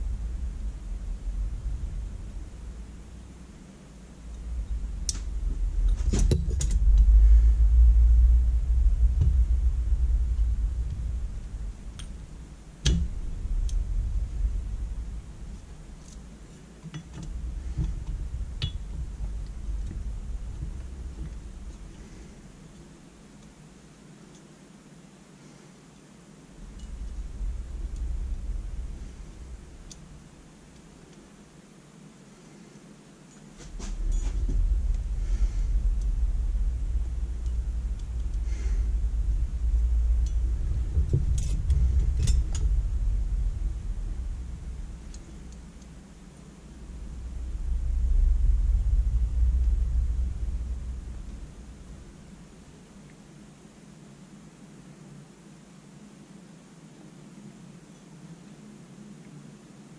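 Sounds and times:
low rumble: 0:00.0 - 0:23.5, 0:26.5 - 0:31.1, 0:33.6 - 0:53.2
small metal parts clicking: 0:41.2 - 0:42.8.

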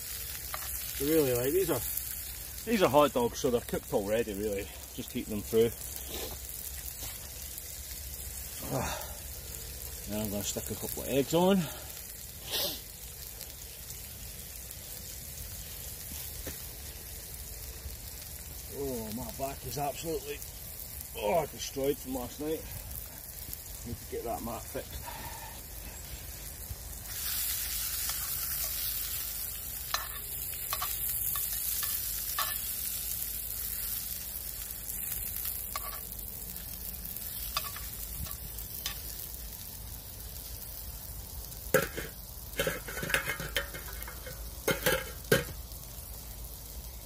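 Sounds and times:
sausages sizzling in a frying pan: 0:00.0 - 0:47.0
tongs clattering on enamel plate: 0:29.9 - 0:32.6.

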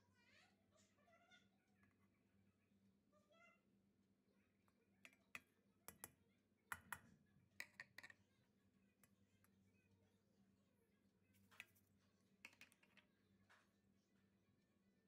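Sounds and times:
plastic cup knocking on steel pot: 0:07.6 - 0:08.2.

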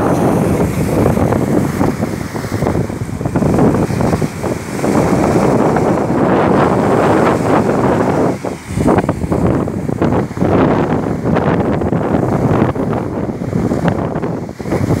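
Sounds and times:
waves breaking on sand: 0:00.0 - 0:15.0
wind buffeting microphone: 0:00.0 - 0:15.0.

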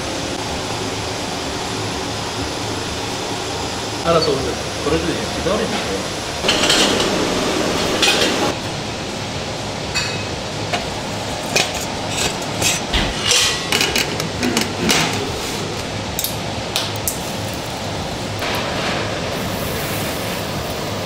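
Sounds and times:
metal clanks of grill parts: 0:05.6 - 0:07.2, 0:07.8 - 0:08.6, 0:09.9 - 0:15.3.

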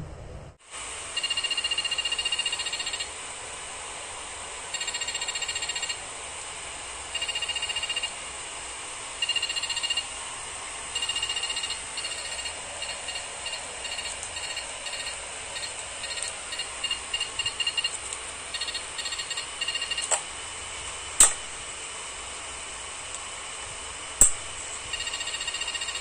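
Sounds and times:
piezo buzzer stuttering beeps: 0:01.2 - 0:03.1, 0:04.7 - 0:06.0, 0:07.1 - 0:08.2, 0:09.2 - 0:10.1, 0:11.0 - 0:20.1, 0:24.9 - 0:26.0.

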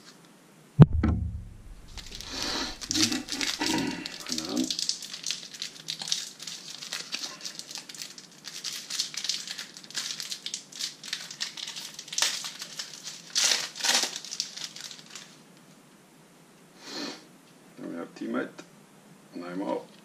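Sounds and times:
foil wrapper crinkling and tearing: 0:01.9 - 0:15.4.

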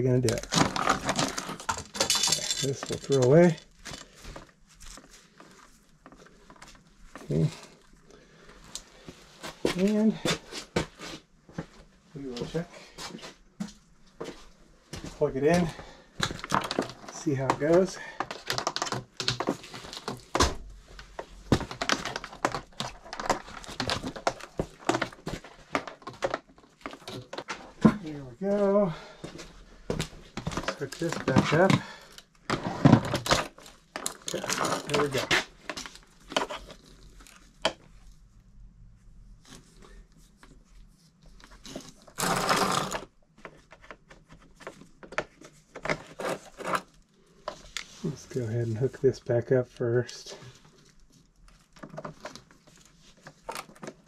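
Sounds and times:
plastic scrape: 0:41.5 - 0:43.1.

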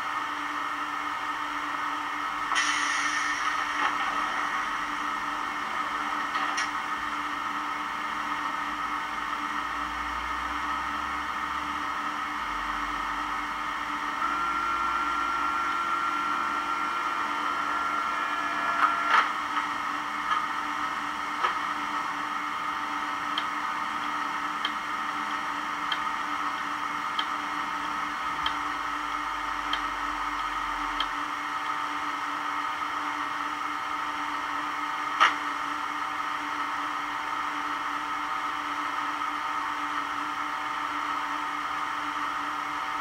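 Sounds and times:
steady mechanical hum: 0:00.0 - 0:43.0
steady tone: 0:07.0 - 0:21.2.

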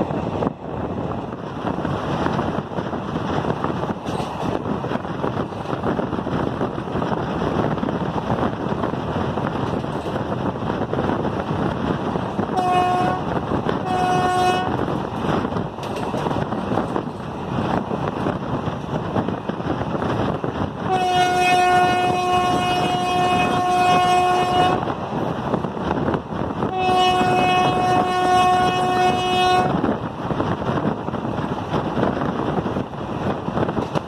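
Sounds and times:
moving train running noise: 0:00.0 - 0:34.0
wind on microphone: 0:00.0 - 0:34.0
locomotive horn blasts: 0:12.5 - 0:14.8, 0:20.8 - 0:24.9, 0:26.6 - 0:29.8.

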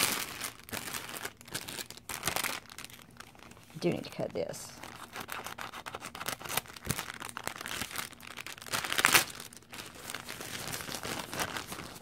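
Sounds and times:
plastic wrapper crinkling: 0:00.0 - 0:12.0
scissors cutting plastic: 0:04.9 - 0:07.0.

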